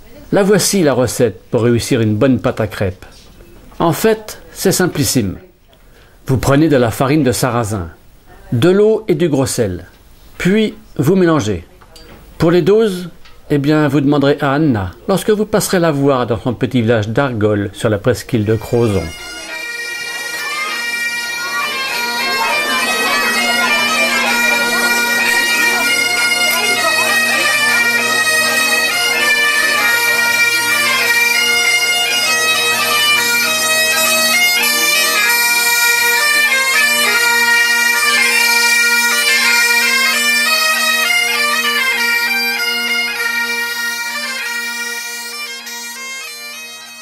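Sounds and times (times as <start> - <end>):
bagpipe melody over drones: 18.4 - 47.0.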